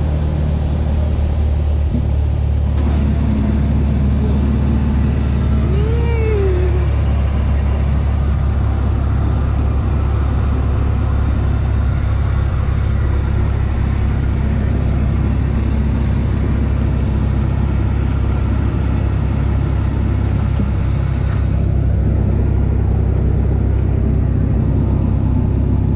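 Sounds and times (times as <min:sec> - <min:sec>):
light aircraft engine droning: 0:00.0 - 0:25.9.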